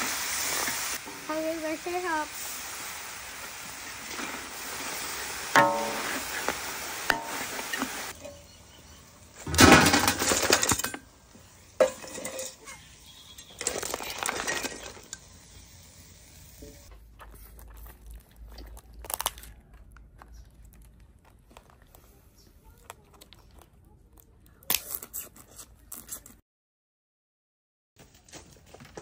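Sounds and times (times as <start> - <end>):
spatula clattering on metal wok: 5.6 - 6.4.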